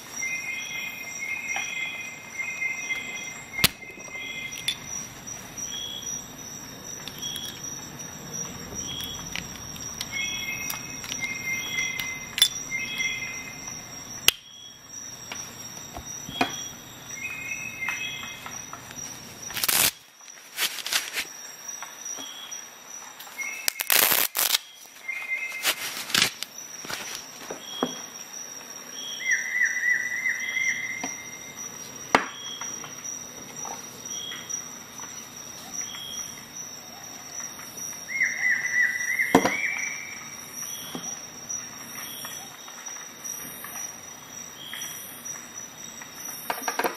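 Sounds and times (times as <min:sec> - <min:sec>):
faint high whine: 0:00.0 - 0:21.3.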